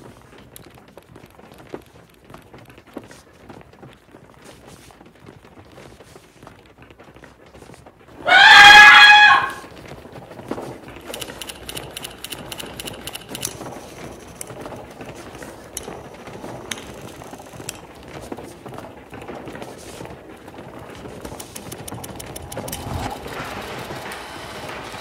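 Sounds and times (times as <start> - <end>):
woman screaming: 8.2 - 9.6.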